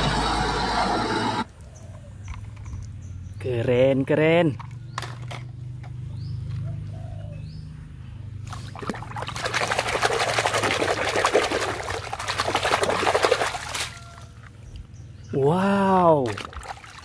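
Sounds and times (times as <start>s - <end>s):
water splashing in a metal basin: 8.5s - 14.2s, 16.1s - 17.0s.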